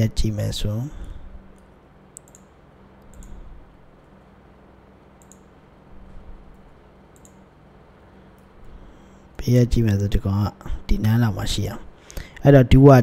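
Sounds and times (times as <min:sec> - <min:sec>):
low steady hum: 0:00.0 - 0:13.0
computer mouse clicks: 0:01.5 - 0:03.4, 0:05.2 - 0:05.5, 0:06.5 - 0:07.5.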